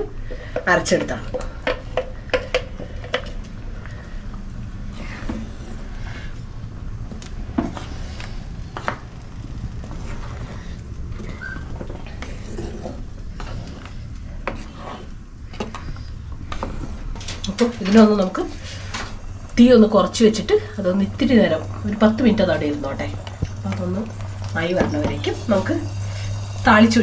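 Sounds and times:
steady low hum: 0.0s - 27.0s
wooden spoon stirring curry: 9.8s - 17.0s.

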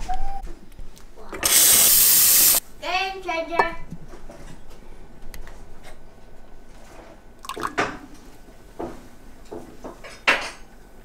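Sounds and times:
steam wand hissing: 1.4s - 2.6s.

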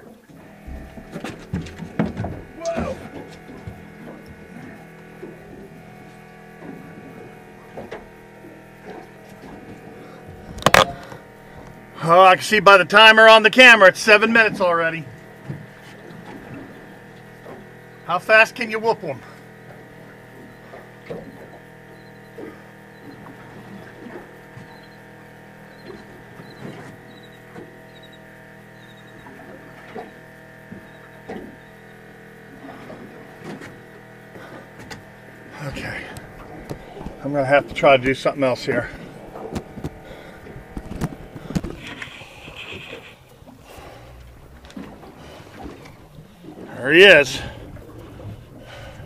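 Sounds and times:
steady mechanical hum: 0.0s - 49.0s
fishing reel whirring: 0.2s - 49.0s.

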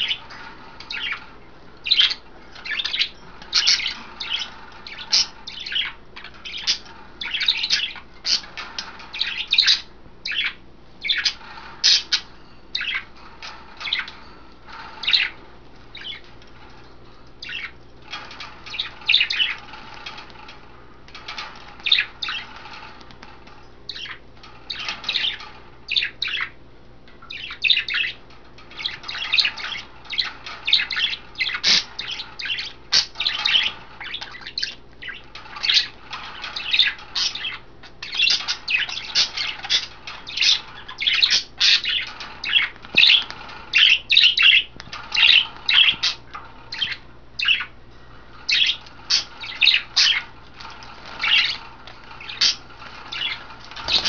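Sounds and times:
budgies chirping and squawking: 0.0s - 26.6s, 27.2s - 54.0s
wings fluttering and water splashing: 48.4s - 54.0s.

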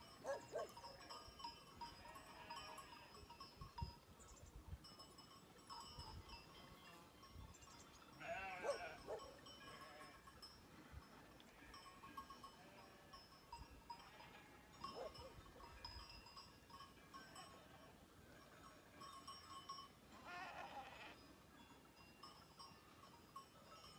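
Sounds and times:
distant livestock bleating: 8.2s - 10.3s, 20.1s - 21.2s.

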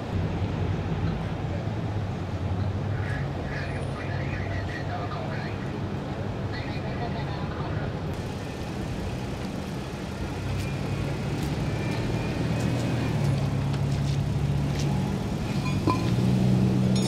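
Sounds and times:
vehicle engine humming: 7.9s - 17.0s.

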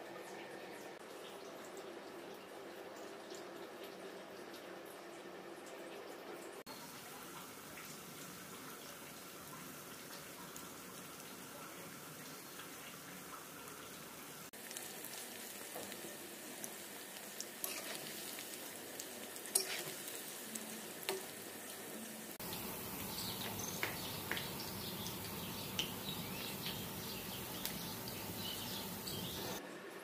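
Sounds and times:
food deep-frying in hot oil: 6.5s - 29.9s.

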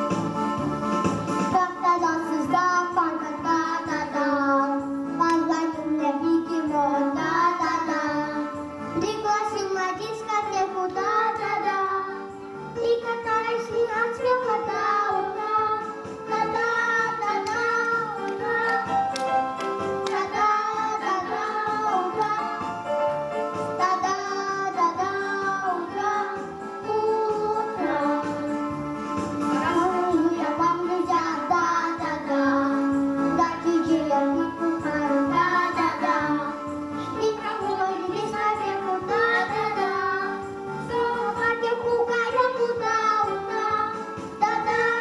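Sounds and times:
backing music with steady beat: 0.0s - 45.0s
child singing into a microphone: 1.5s - 19.3s, 20.0s - 22.7s, 23.8s - 28.5s, 29.6s - 45.0s.

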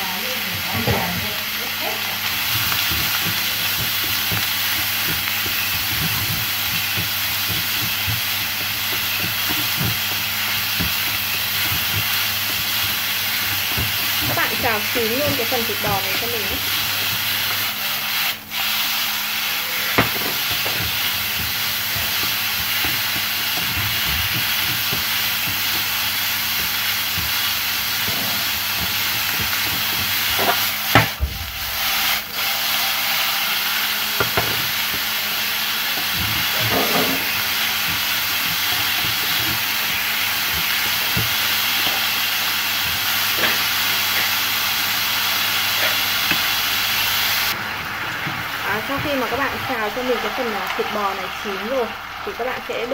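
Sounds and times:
beef sizzling in oil: 0.0s - 52.9s
chopsticks knocking on pan: 2.5s - 16.5s.

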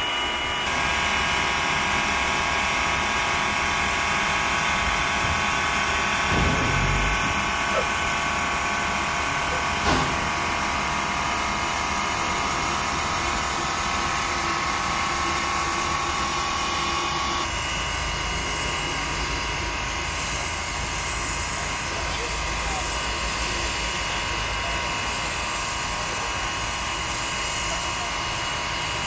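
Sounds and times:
steam locomotive hissing: 0.0s - 29.0s
sharp knock: 6.3s - 7.8s, 9.8s - 10.3s.

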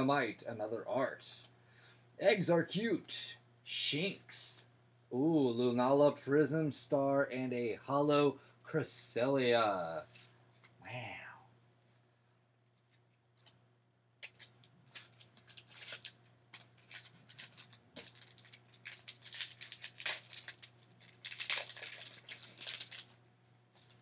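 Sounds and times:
foil wrapper tearing and crinkling: 14.2s - 23.2s, 23.8s - 24.0s.

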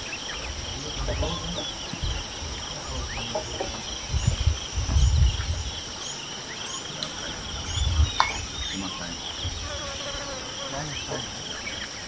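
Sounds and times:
low buffeting rumble: 0.0s - 6.0s, 6.8s - 9.7s
bird chirps: 0.0s - 12.0s
insects chorus: 0.0s - 12.0s.

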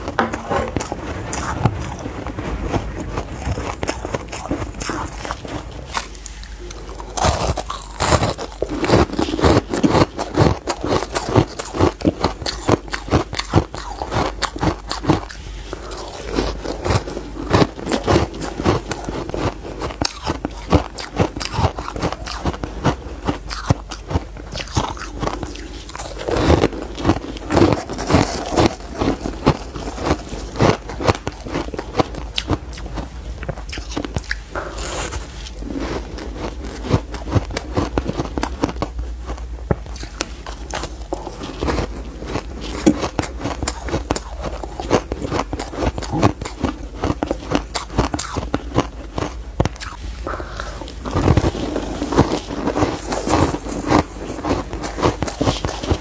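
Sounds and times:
person crunching ice: 0.0s - 33.1s, 33.7s - 56.0s.

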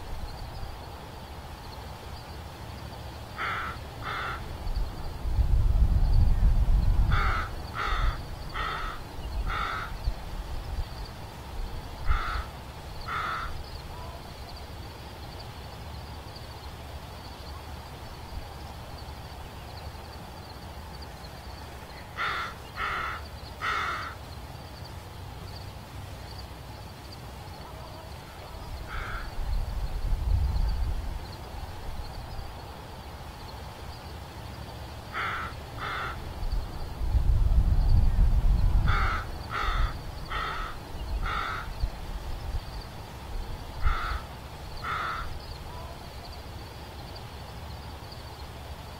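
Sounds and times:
crows cawing: 3.4s - 4.5s, 7.1s - 10.0s, 12.0s - 13.6s, 22.1s - 24.2s, 28.9s - 29.3s, 35.1s - 36.3s, 38.9s - 41.8s, 43.8s - 45.3s.

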